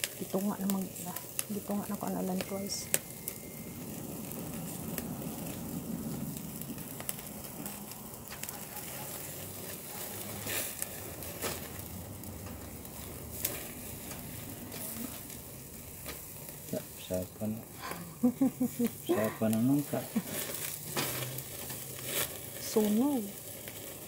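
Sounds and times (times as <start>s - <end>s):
meat sizzling on a grill: 0.0s - 24.0s
tongs clicking on grill grate: 13.4s - 15.0s.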